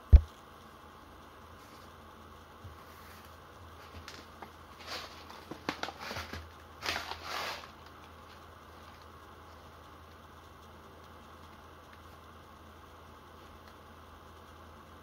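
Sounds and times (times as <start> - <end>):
plastic bag crinkling: 3.8 - 9.1.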